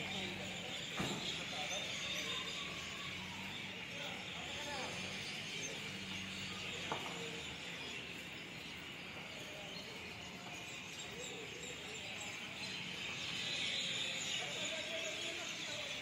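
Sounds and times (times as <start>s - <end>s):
birds chirping chorus: 0.0s - 16.0s.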